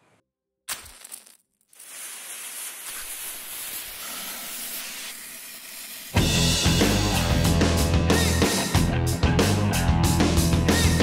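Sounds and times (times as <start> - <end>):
smoke bomb hissing: 1.7 - 7.6.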